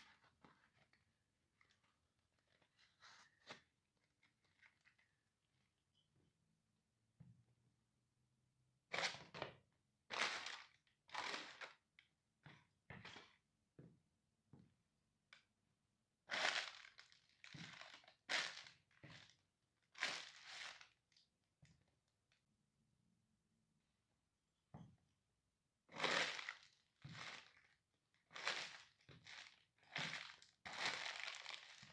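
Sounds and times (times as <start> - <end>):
paper bag crunched underfoot: 28.4 - 31.9.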